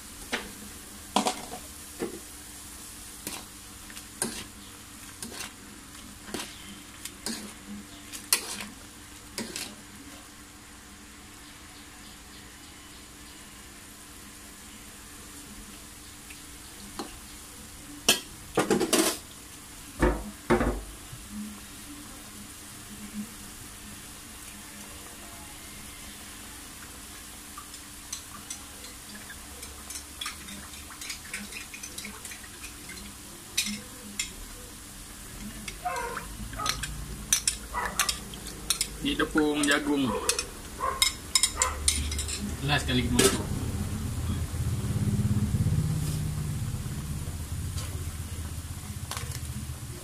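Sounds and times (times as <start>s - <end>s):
gravy simmering in a wok: 0.0s - 50.0s
spoon scraping a bowl: 4.2s - 4.5s, 5.2s - 5.6s, 6.3s - 7.6s, 8.3s - 8.7s, 9.4s - 9.8s, 35.7s - 39.0s.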